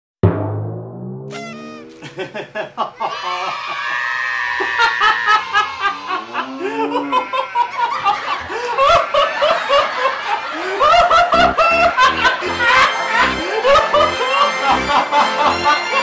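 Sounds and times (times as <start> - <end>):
laughter in short bursts: 1.3 - 3.1
loud background music: 11.8 - 16.0.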